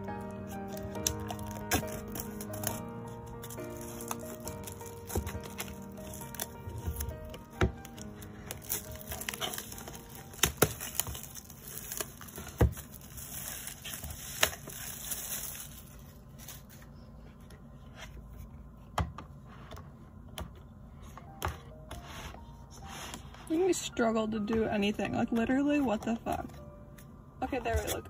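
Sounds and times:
plastic shrink wrap crinkling: 0.2s - 17.0s.

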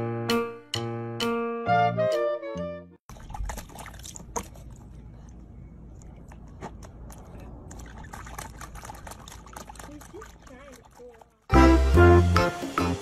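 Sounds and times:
piano music: 0.0s - 3.0s, 11.5s - 13.0s
water splashing and dripping: 3.1s - 13.0s.

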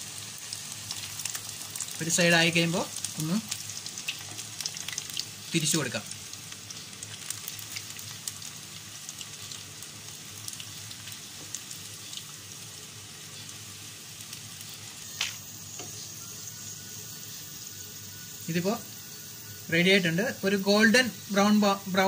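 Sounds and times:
onion rings frying in oil: 0.0s - 22.0s.

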